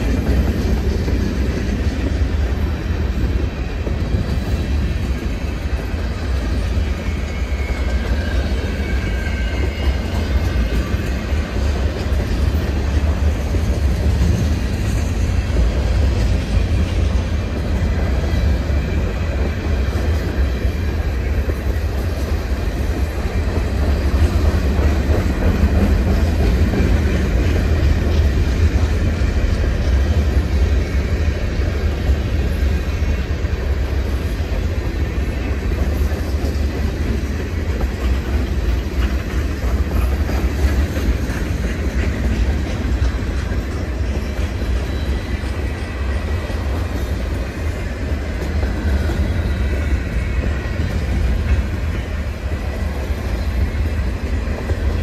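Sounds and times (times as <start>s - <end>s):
train wheels rumbling on rail: 0.0s - 55.0s
high wheel squeals: 6.2s - 11.6s.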